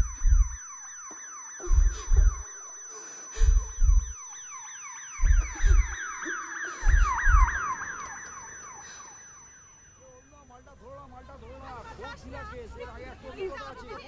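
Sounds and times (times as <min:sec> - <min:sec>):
deep thumps: 0:00.0 - 0:00.7, 0:01.6 - 0:02.6, 0:03.4 - 0:04.3, 0:05.2 - 0:06.0, 0:06.8 - 0:07.7
siren wailing: 0:00.0 - 0:10.5.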